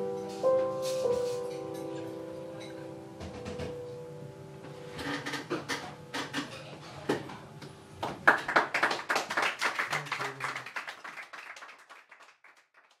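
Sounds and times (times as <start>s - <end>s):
people clapping: 8.0s - 13.0s.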